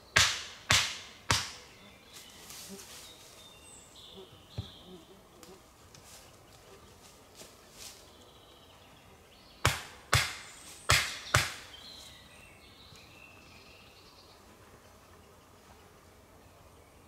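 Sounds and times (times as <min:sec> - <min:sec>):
tool striking wood: 0:00.2 - 0:01.6, 0:09.6 - 0:11.6.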